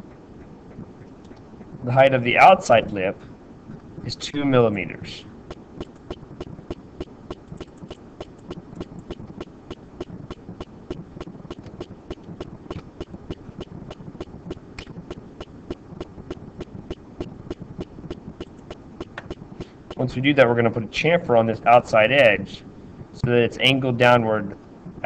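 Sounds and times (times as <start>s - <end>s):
low background hum: 0.0s - 25.0s
keyboard and mouse clicking: 0.7s - 1.5s, 5.5s - 19.7s.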